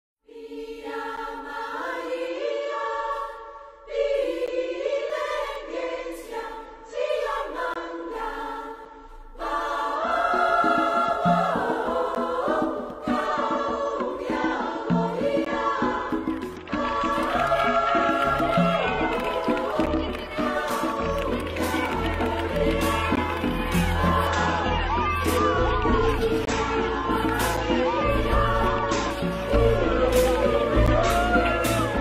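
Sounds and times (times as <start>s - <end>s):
choir singing held notes: 0.3s - 32.0s.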